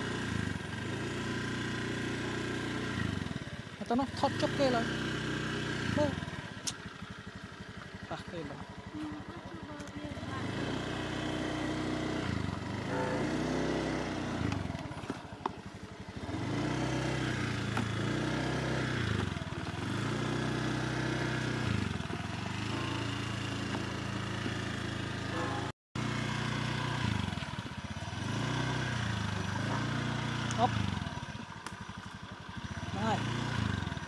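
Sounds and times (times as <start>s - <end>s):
scooter engine revving: 0.0s - 34.0s.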